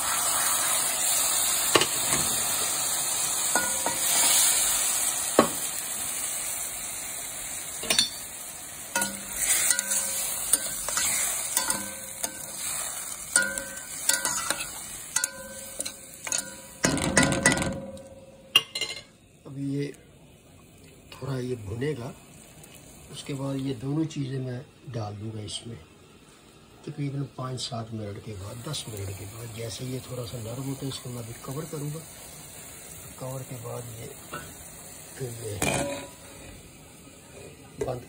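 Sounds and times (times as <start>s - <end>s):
water sizzling in hot pan: 0.0s - 38.0s
metal spoon scraping pan: 9.0s - 17.8s.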